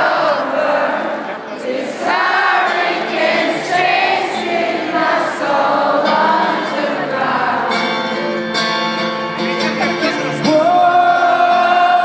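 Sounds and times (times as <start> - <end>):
crowd singing together: 0.0 - 12.0
acoustic guitar: 2.6 - 12.0.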